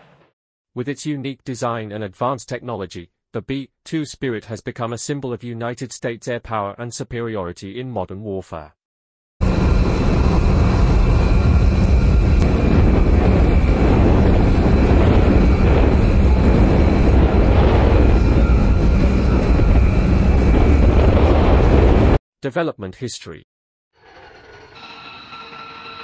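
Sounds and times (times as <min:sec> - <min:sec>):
engine rumble with high whine: 0:09.4 - 0:21.1.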